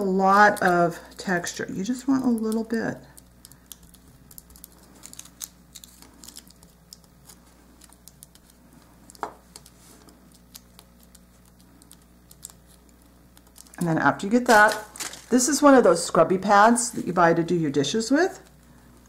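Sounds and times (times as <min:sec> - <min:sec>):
foil crinkling on clay: 0:00.0 - 0:15.6
low steady hum: 0:00.0 - 0:19.0.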